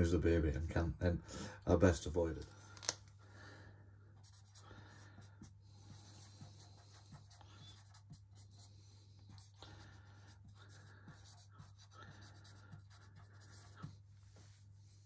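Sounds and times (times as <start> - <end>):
marker scratching on whiteboard: 4.2 - 15.0.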